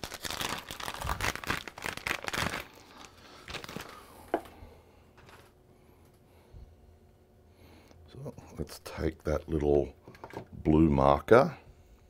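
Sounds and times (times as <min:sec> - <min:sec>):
plastic packaging crinkling: 0:00.0 - 0:04.5.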